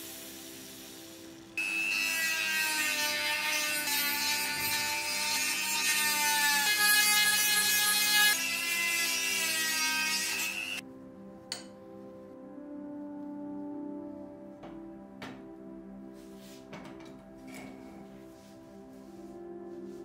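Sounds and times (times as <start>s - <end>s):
sanding drum grinding metal: 1.9s - 10.8s.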